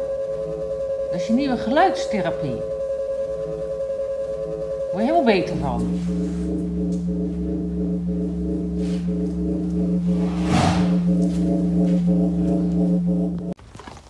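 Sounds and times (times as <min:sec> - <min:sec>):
drone of held tones: 0:00.0 - 0:13.6
brief rushing noise: 0:10.1 - 0:11.4.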